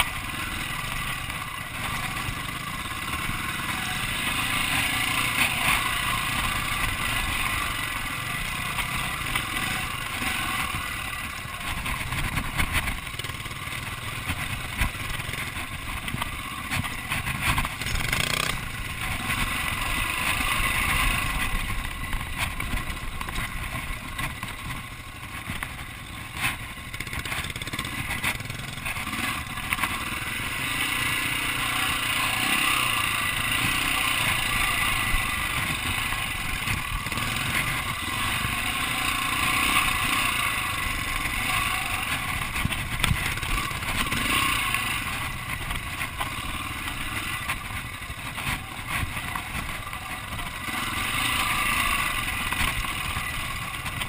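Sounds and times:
motorcycle engine under load: 0.0 - 54.0
motorcycle knocking over rocks: 14.2 - 19.5.

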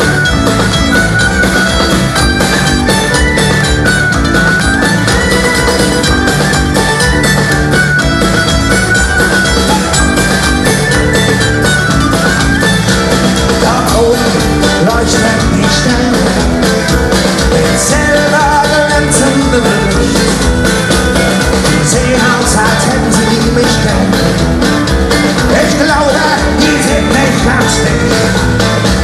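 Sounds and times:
electric guitars: 0.0 - 29.0
fiddle: 0.0 - 29.0
folk-metal band playing live: 0.0 - 29.0
person singing: 13.5 - 16.7, 17.4 - 20.6, 21.2 - 24.5, 25.4 - 28.7.

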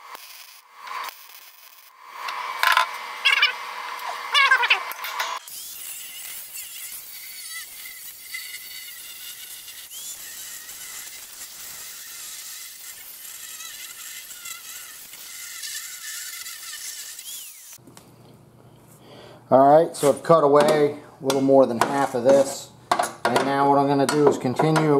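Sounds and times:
angle grinder cutting metal: 0.0 - 17.8.

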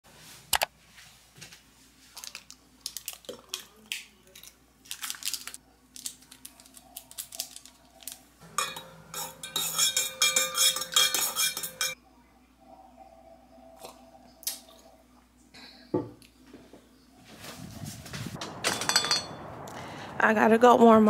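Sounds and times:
kitchen items clicking and rustling: 2.2 - 12.0
spoon clinking in metal tumbler: 8.6 - 12.0.

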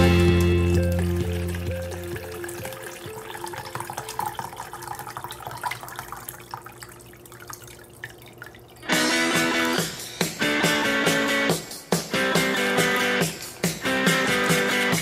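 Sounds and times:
loud guitar music: 0.0 - 1.9, 8.9 - 15.0
water pouring and splashing: 0.0 - 10.4.

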